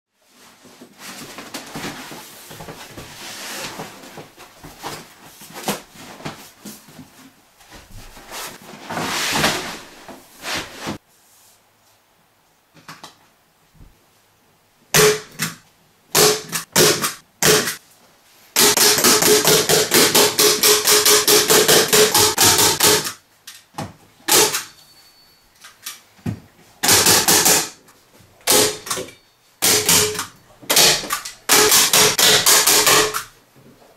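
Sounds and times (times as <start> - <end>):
rustling and scraping: 0.2 - 12.1
hand tool striking into wood: 29.6 - 33.2.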